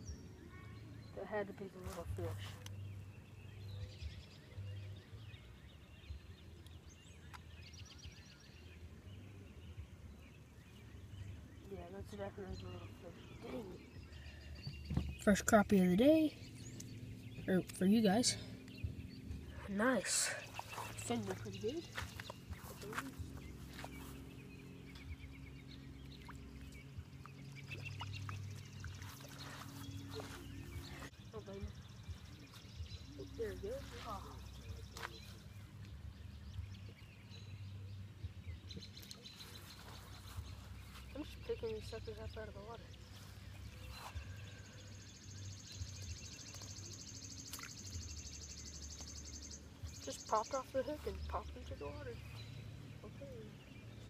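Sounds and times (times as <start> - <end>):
low wind rumble: 2.1 - 54.0
steady low hum: 8.3 - 54.0.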